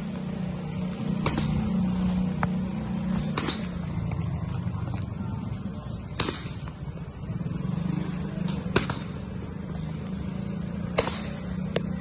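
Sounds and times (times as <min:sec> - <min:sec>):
cricket bat striking balls: 0:01.1 - 0:04.0, 0:08.6 - 0:09.4, 0:10.9 - 0:12.0.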